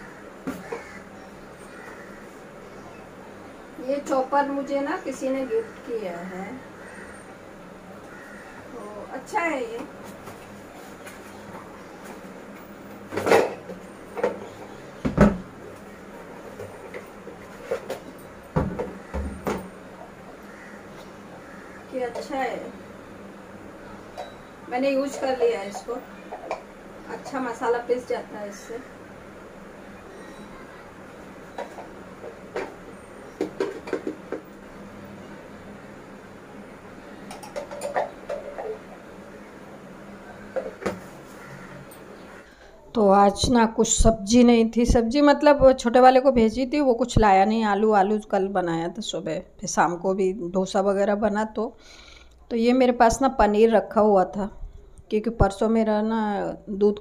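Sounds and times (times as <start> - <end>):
low steady hum: 0.0 - 57.0.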